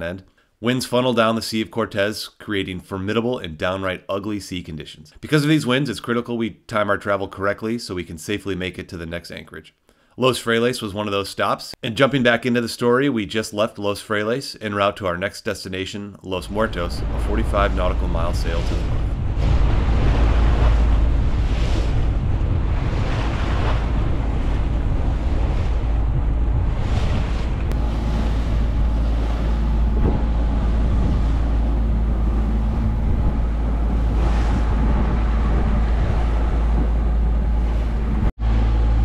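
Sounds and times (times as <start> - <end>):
water splashing along hull: 16.4 - 39.0
wind buffeting microphone: 16.5 - 39.0.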